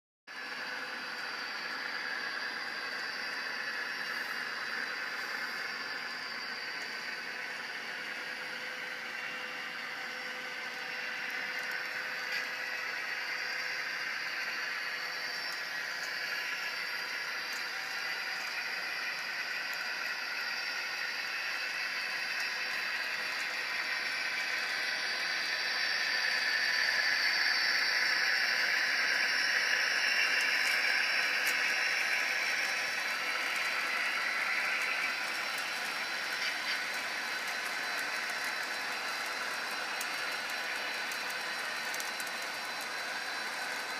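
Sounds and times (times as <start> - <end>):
model train whirring on track: 0.3 - 43.9.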